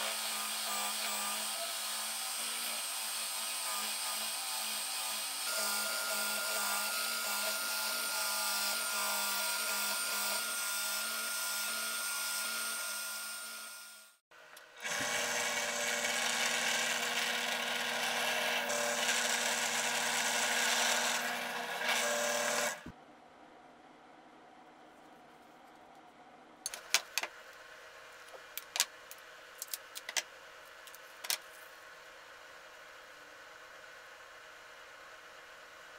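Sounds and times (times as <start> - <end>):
drill press boring plywood: 0.0 - 14.0, 14.7 - 22.9
drill sanding plywood: 0.0 - 14.0, 14.8 - 22.9.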